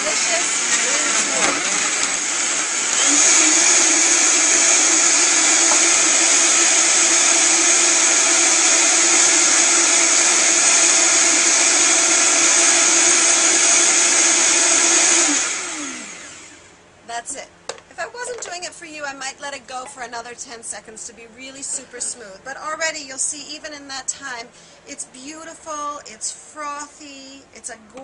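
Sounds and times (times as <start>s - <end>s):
blender running: 0.0s - 16.7s.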